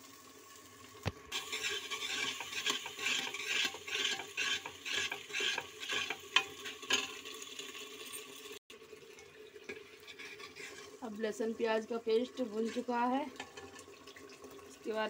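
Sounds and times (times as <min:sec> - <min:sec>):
paste sizzling in hot oil: 0:00.0 - 0:08.6, 0:09.7 - 0:15.0
ladle scraping pot: 0:01.3 - 0:07.7, 0:09.7 - 0:11.2, 0:12.1 - 0:13.9.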